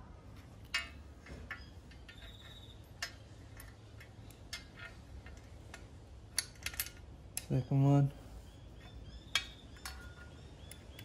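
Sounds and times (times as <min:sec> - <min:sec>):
light metallic clicks of bolts: 0:00.6 - 0:07.6.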